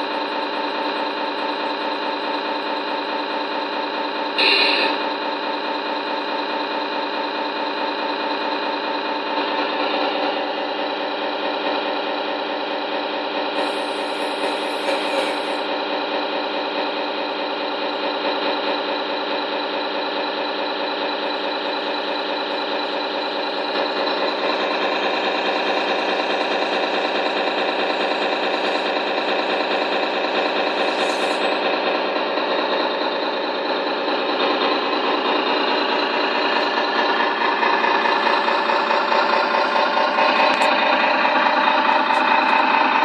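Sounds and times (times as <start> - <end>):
model truck mechanical drone: 0.0 - 43.0
brief high hiss: 13.6 - 15.6.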